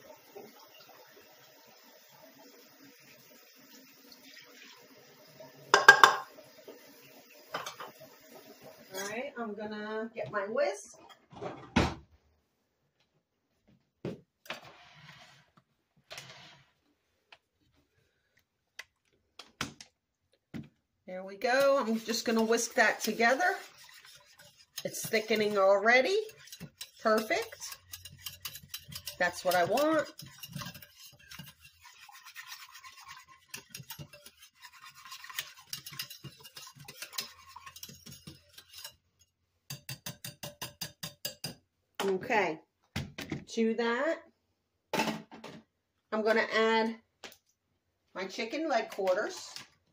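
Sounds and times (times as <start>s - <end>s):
kitchen utensils clattering: 5.7s - 6.3s, 7.5s - 8.0s, 21.4s - 39.0s
whisk scraping a crock: 21.4s - 41.5s.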